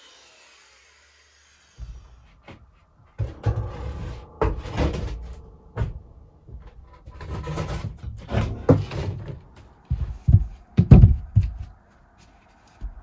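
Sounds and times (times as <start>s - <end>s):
board scraping and thumping on wood: 1.8s - 11.7s.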